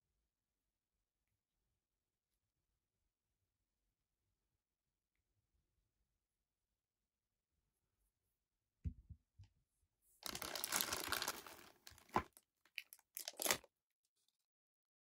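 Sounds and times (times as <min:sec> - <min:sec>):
plastic bag crinkling: 0:10.2 - 0:13.7.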